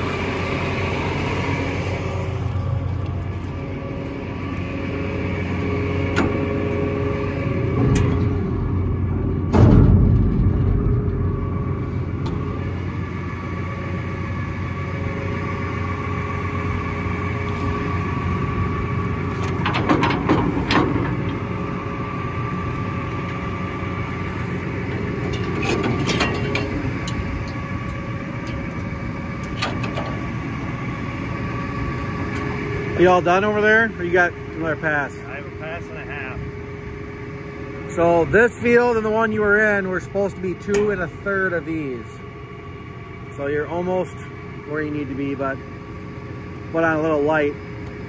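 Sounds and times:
tractor diesel engine idling: 0.0 - 48.0
thump at hitch: 9.5 - 10.8
metal clatter at hitch: 19.1 - 21.8, 24.2 - 30.4.

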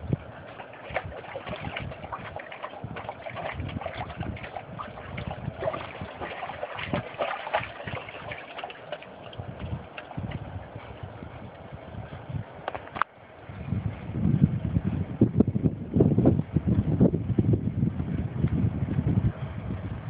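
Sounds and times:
shallow water splashing: 0.0 - 10.9
wind buffeting microphone: 0.0 - 20.0.

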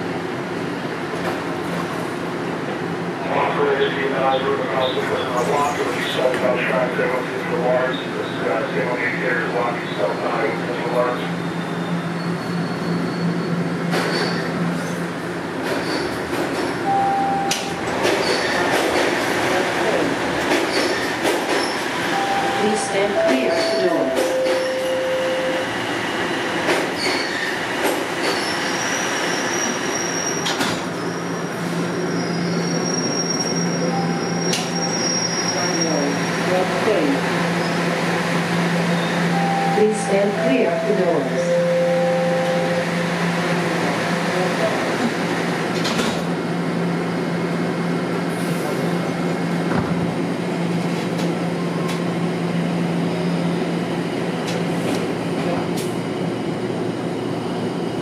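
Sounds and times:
train passing: 0.0 - 29.9
subway car hum: 0.0 - 58.0
train doors sliding shut: 30.3 - 31.9, 45.1 - 46.4.

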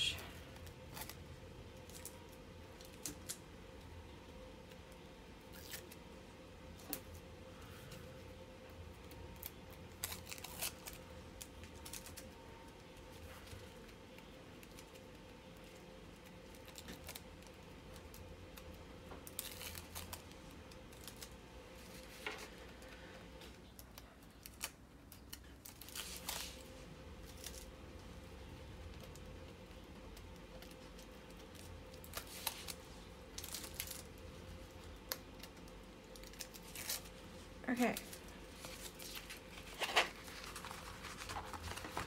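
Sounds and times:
faint steady hum: 0.0 - 42.0
wrapping crinkling: 4.6 - 42.0
packing tape ripping: 9.4 - 12.3, 16.2 - 21.3, 30.6 - 32.8, 35.0 - 37.1.

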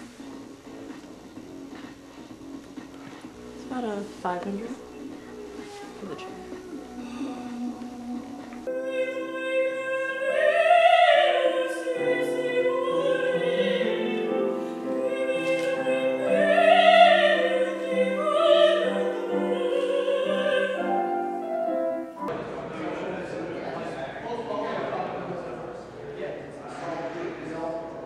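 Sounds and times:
opera voice holding long notes: 5.5 - 22.2.

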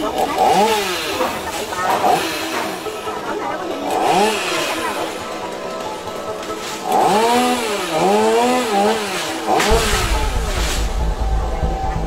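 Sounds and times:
chainsaw revving: 0.0 - 12.0
low rumble: 9.7 - 12.0.

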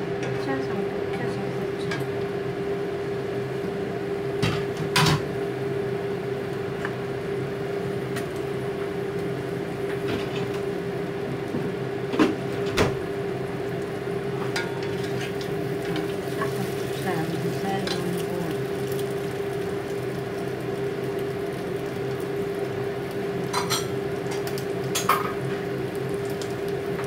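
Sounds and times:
kitchen appliance humming: 0.0 - 27.0
pots and utensils clattering: 14.5 - 16.1, 23.5 - 25.4.

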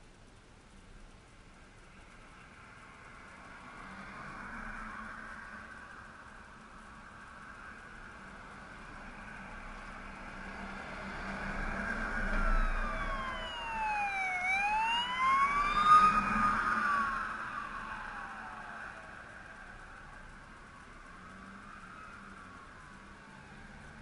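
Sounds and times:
passing road traffic: 1.5 - 24.0
emergency siren wailing: 10.4 - 24.0.

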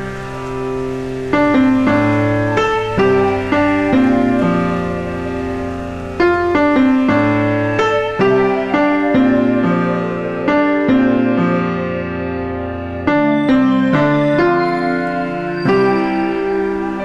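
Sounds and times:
slow gentle piano: 0.0 - 17.0.

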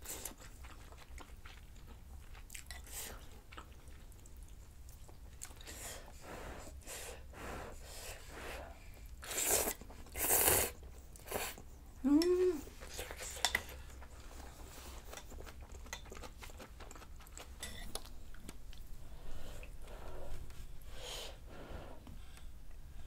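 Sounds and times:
chewing and slurping noodles: 0.0 - 5.8, 9.2 - 11.7, 12.8 - 18.9.

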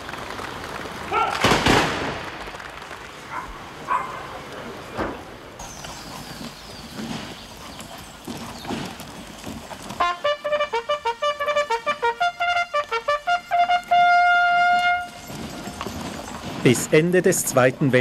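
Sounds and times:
low outdoor noise: 0.0 - 18.0
military trumpet call: 10.0 - 15.4.

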